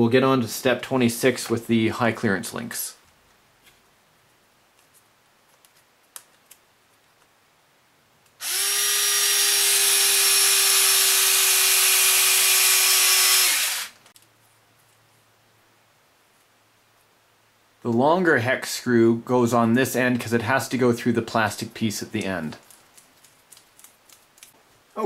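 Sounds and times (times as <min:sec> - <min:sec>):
cordless drill driving screw: 0:08.4 - 0:14.0.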